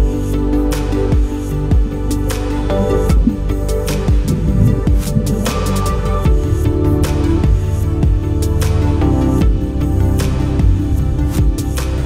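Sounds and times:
electronic music with synth chords: 0.0 - 12.0
deep drum hits: 4.1 - 6.4.

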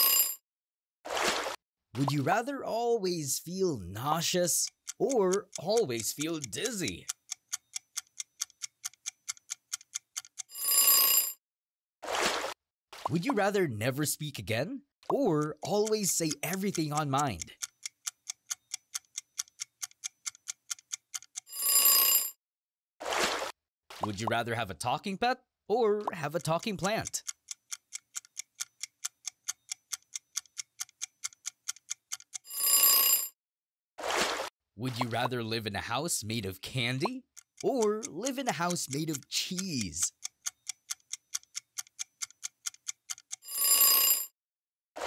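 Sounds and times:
quick clock ticking: 3.4 - 11.0, 15.1 - 21.9, 26.0 - 32.5, 36.8 - 44.2.

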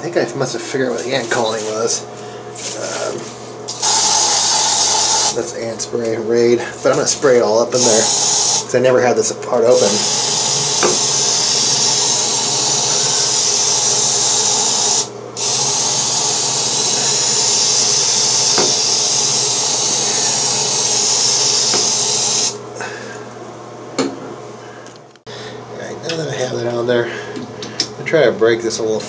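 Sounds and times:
aerosol can spray hissing: 3.7 - 5.4, 7.8 - 8.6, 9.8 - 22.6.

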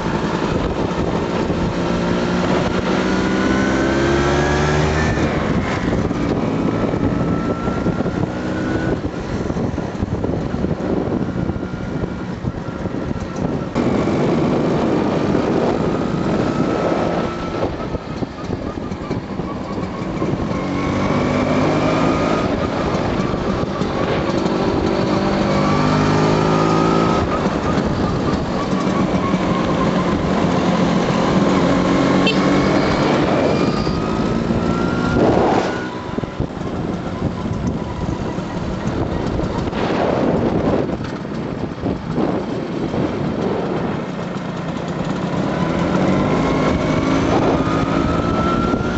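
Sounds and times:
two-stroke scooter engines revving: 0.0 - 48.9.

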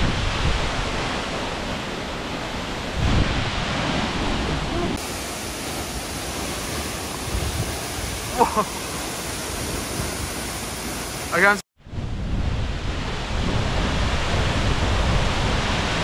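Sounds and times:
waterfall rushing: 0.0 - 11.6.

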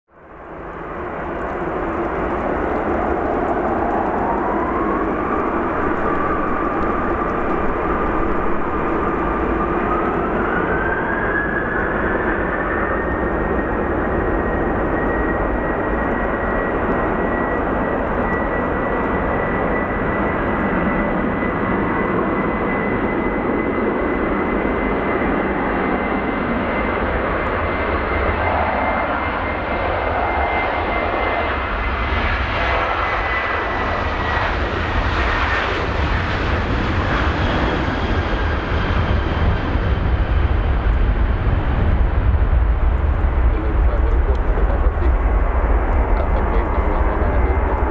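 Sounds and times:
jet engines roaring at takeoff: 0.1 - 47.9
high engine whine: 0.2 - 47.9.

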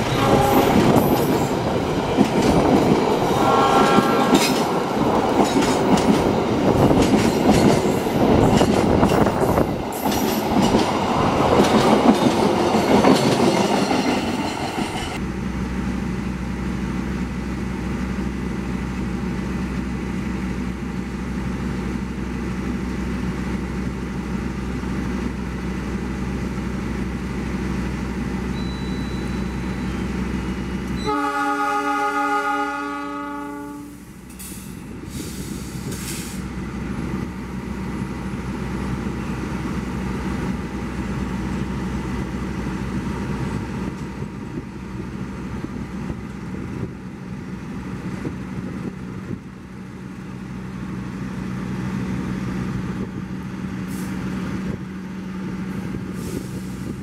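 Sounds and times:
train horn blast: 0.0 - 1.2, 3.2 - 4.7, 31.0 - 34.1
train rumbling past: 0.0 - 57.0.

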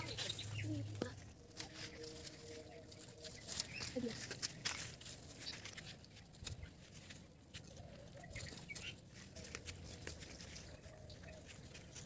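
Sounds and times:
faint wavering calls: 0.0 - 4.3
leaves rustling and snapping: 1.0 - 10.8.

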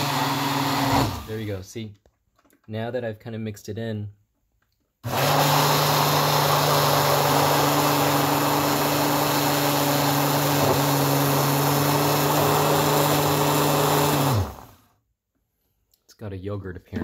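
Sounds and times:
blender motor running: 0.0 - 1.5, 5.0 - 14.9.

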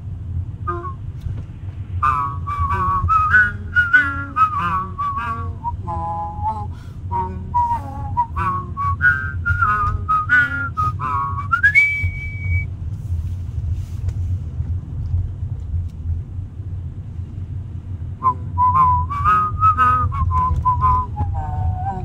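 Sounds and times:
car rumbling in motion: 0.0 - 22.0
person whistling a melody: 0.7 - 1.0, 2.0 - 12.7, 18.2 - 22.0.

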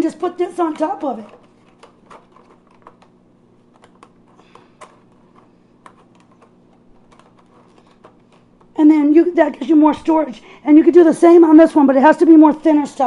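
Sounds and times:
low steady hum: 0.0 - 13.0
plastic trays clicking: 0.5 - 3.1, 3.7 - 8.7.

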